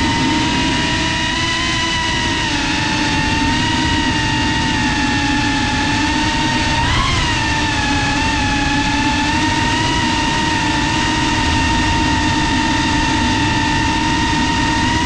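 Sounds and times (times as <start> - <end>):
drone motors whining: 0.0 - 15.0
rushing noise: 3.2 - 15.0.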